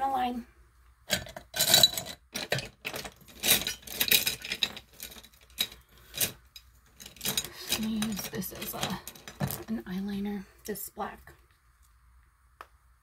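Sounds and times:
makeup containers clicking and rattling: 1.1s - 9.7s.

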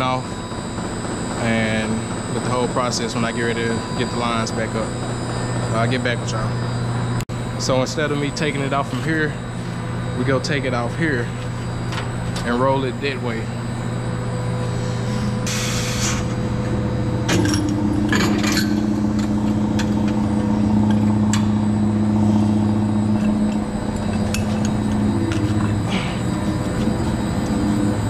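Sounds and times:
motor drone: 0.0s - 28.0s
metal hose couplings clanking: 23.2s - 25.9s.

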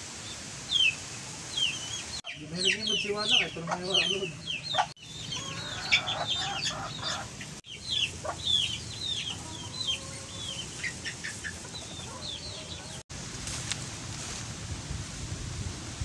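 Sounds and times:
chicks peeping: 0.7s - 13.0s
chickens clucking: 1.6s - 13.0s.

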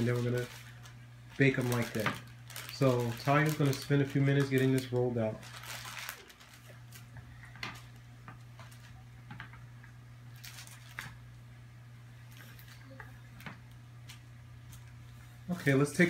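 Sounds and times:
wax paper rustling: 0.0s - 9.3s, 10.3s - 11.3s
steady low hum: 0.0s - 16.0s.

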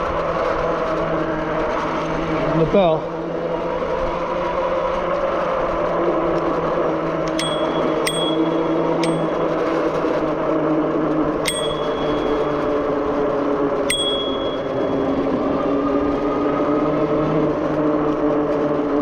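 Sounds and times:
e-bike motor hum: 0.0s - 19.0s
bicycle bell ding: 7.3s - 9.7s, 11.5s - 13.2s, 13.9s - 15.3s.

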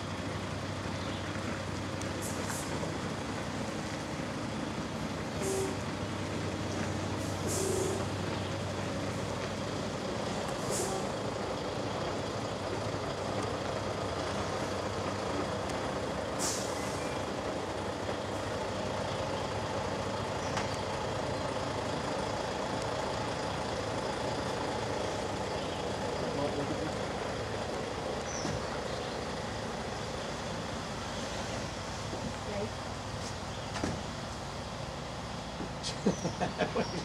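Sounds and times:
diesel truck engine running: 0.0s - 37.0s
air brake hisses: 7.2s - 8.0s, 16.4s - 17.1s.

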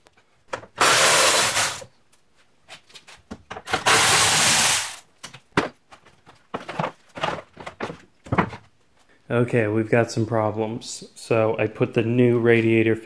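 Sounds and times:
electric ratchet whining: 0.8s - 1.8s
plastic parts knocking and rattling: 3.3s - 8.7s.

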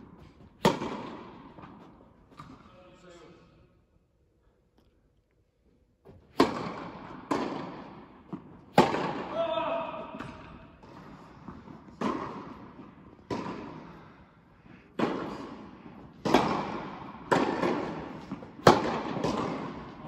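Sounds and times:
tennis ball pops with echo: 16.2s - 20.0s.

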